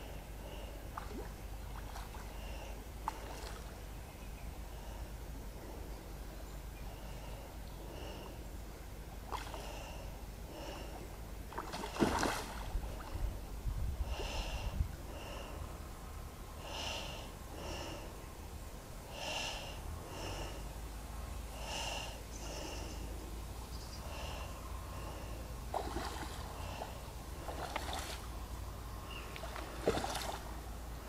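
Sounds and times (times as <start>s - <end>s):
heavy breathing: 9.6s - 11.1s, 13.9s - 18.2s, 19.0s - 23.3s, 24.0s - 25.6s, 26.4s - 27.6s.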